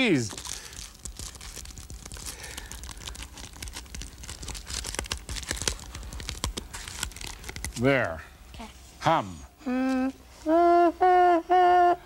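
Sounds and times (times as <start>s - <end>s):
wax paper crinkling: 0.0s - 7.9s.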